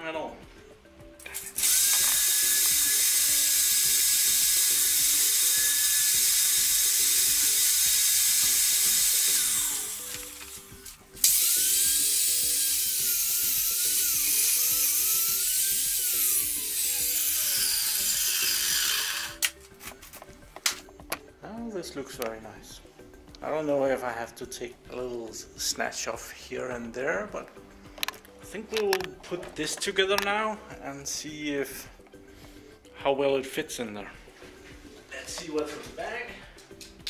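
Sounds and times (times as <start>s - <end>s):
shop vacuum running: 1.6s - 10.6s.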